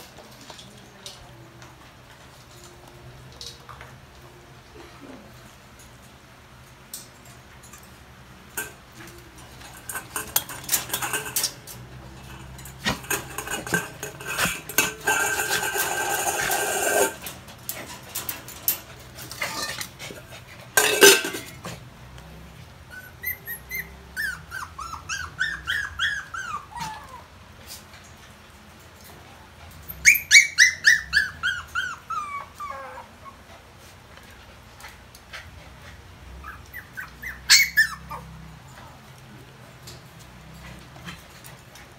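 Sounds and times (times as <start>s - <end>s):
wire cage rattling: 8.6s - 20.0s, 20.8s - 21.6s
dog whimpering: 22.9s - 27.4s, 30.0s - 33.5s, 36.4s - 38.5s.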